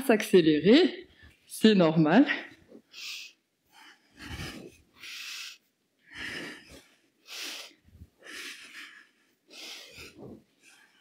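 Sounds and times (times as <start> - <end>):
woman breathing hard: 2.8 - 11.0.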